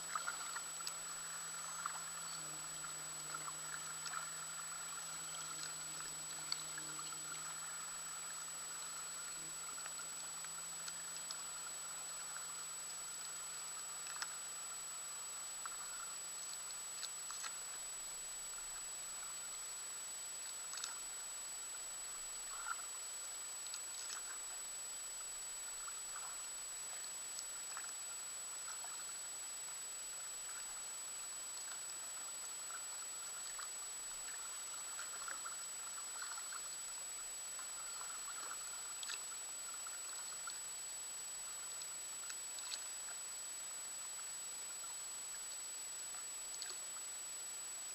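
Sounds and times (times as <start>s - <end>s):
paddle dripping and splashing: 0.0s - 2.3s, 32.7s - 37.0s, 37.6s - 40.6s
faint low hum: 0.0s - 47.9s
steady hiss: 0.0s - 47.9s
thin high whine: 0.0s - 47.9s.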